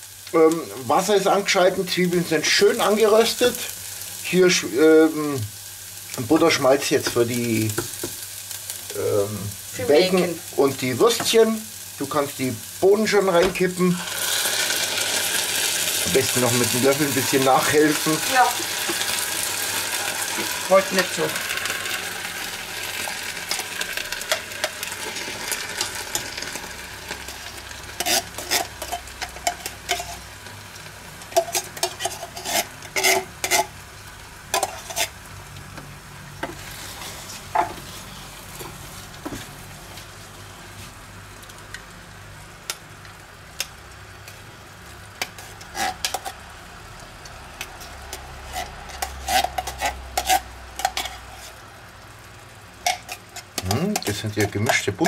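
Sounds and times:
soft sizzle: 0.0s - 55.0s
wooden spoon stirring beans: 9.8s - 21.5s, 47.6s - 51.6s, 52.9s - 55.0s.

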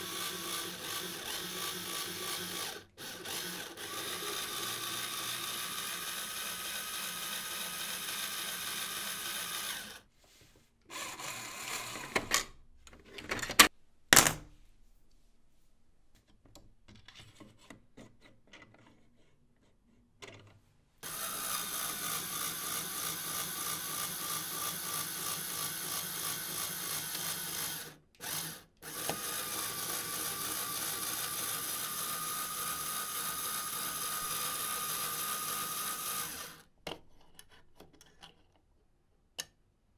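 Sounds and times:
electric motor whining: 21.0s - 36.6s.

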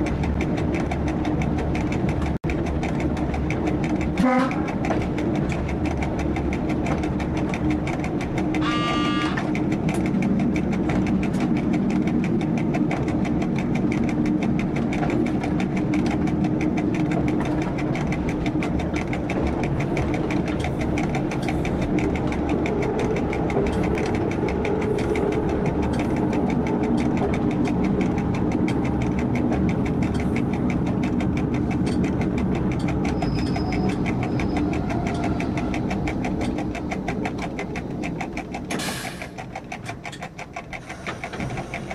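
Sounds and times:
train diesel engine running: 0.0s - 41.9s
train horn blast: 4.2s - 4.7s, 8.6s - 9.5s.

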